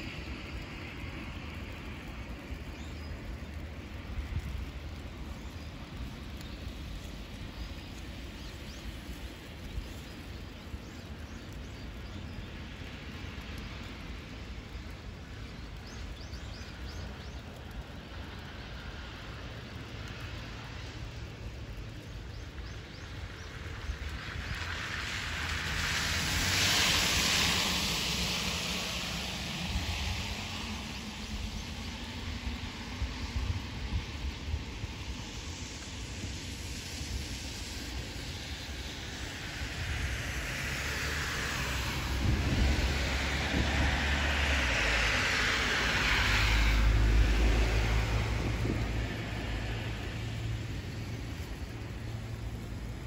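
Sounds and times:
tyre hiss on wet road: 0:00.0 - 0:53.0
road vehicle passing: 0:23.6 - 0:32.6, 0:39.3 - 0:53.0
low rumble: 0:37.8 - 0:53.0.

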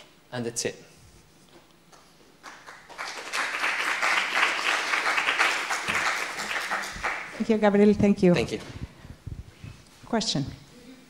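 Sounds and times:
audience applauding: 0:02.4 - 0:07.4.

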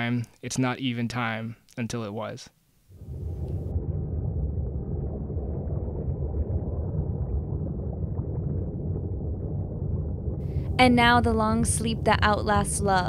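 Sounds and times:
muffled low rumble: 0:03.0 - 0:13.0.

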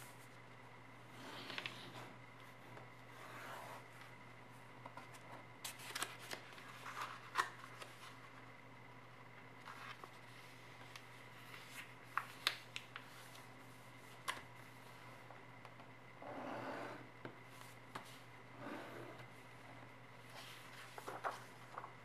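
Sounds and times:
faint steady hum: 0:00.0 - 0:22.0
paper crinkling: 0:09.6 - 0:13.5, 0:20.3 - 0:22.0
paper rustling: 0:09.6 - 0:13.5, 0:20.2 - 0:22.0.

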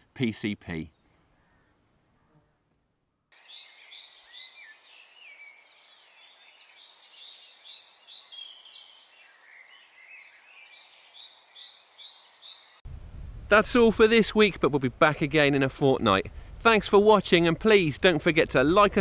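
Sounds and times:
songbirds singing and chirping: 0:03.1 - 0:12.8.

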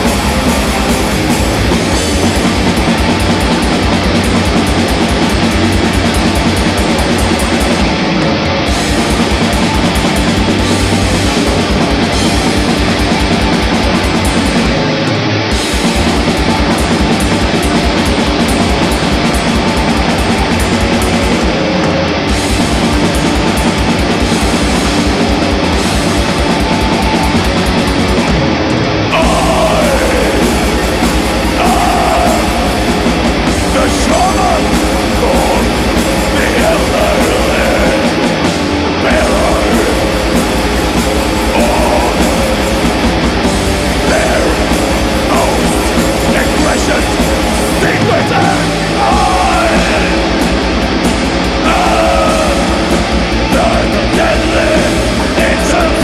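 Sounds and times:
distorted electric guitars: 0:00.0 - 0:56.0
fast driving drums: 0:00.0 - 0:56.0
vocals: 0:28.8 - 0:56.0.

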